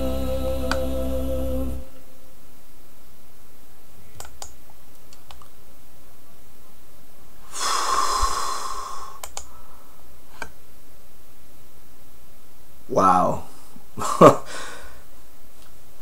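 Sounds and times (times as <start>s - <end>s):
computer clicks: 4.1s - 5.5s, 9.2s - 9.5s
long breathy exhale: 7.5s - 10.0s, 14.5s - 15.0s.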